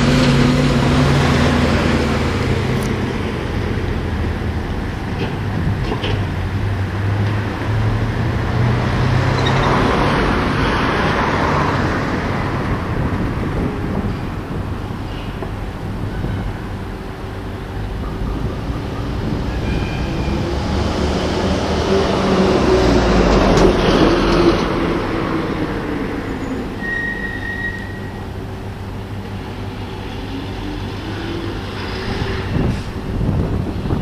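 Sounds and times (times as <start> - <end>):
heavy vehicle rumble: 0.0 - 34.0
short high squeal: 26.3 - 28.2.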